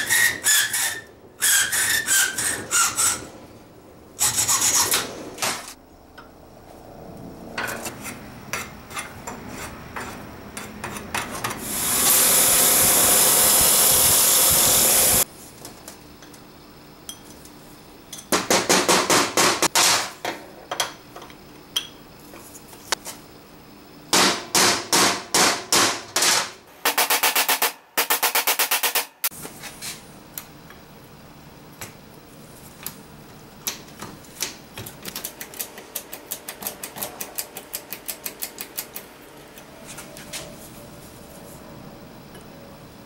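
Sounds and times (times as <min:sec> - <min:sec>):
bench grinder whirring: 0:11.6 - 0:15.2.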